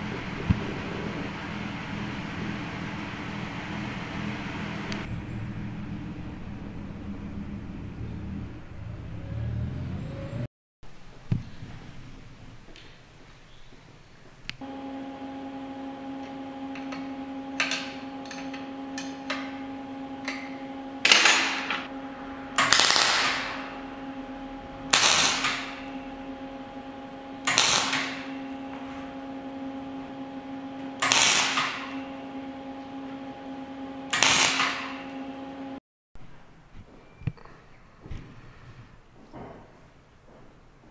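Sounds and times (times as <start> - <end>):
welding machine humming: 14.6 - 35.8.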